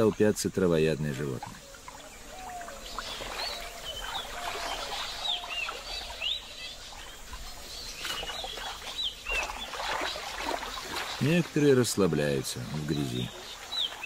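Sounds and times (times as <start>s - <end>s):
lapping water: 0.0s - 14.0s
small birds chirping: 0.0s - 14.0s.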